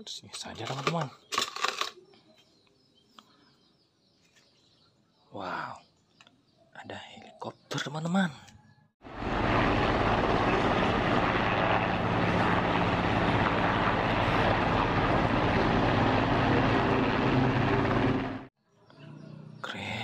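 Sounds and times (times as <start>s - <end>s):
helicopter hovering: 9.0s - 18.5s.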